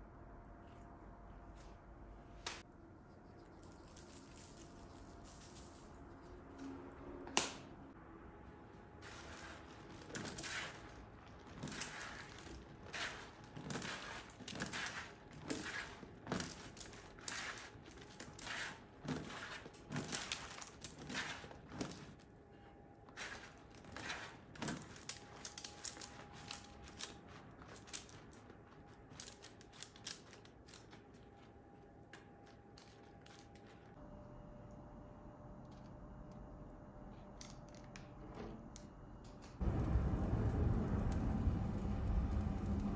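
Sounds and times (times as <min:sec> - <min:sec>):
parchment paper rustling: 0:09.0 - 0:34.0.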